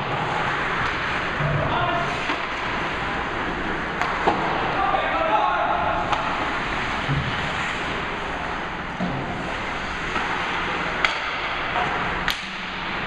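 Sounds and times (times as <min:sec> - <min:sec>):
skate and rink noise: 0:00.0 - 0:13.0
hockey sticks and puck clacking: 0:00.1 - 0:01.3, 0:02.1 - 0:02.9, 0:03.9 - 0:04.7, 0:06.0 - 0:08.0, 0:10.0 - 0:12.9.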